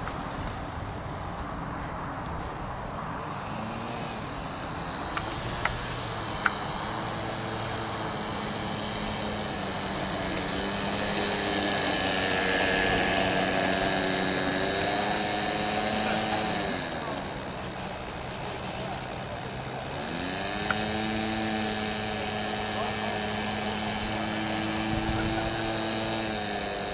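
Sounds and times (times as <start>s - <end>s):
model airplane engine: 0.0s - 26.9s
wind hiss on microphone: 24.8s - 25.6s.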